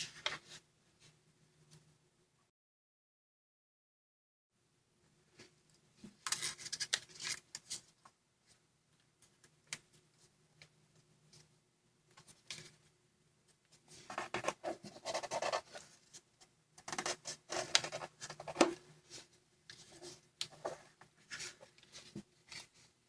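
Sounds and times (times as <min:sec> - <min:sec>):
paper rustling and crinkling: 0:06.0 - 0:08.1.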